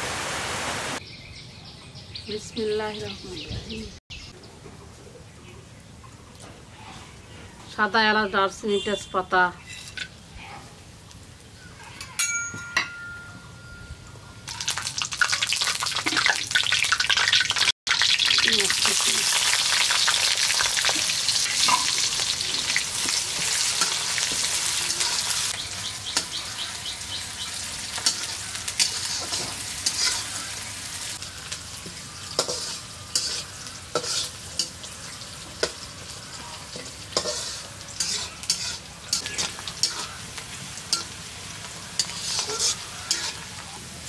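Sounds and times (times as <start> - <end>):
light metallic ring: 12.0 - 14.1
spices sizzling in hot oil: 14.5 - 44.0.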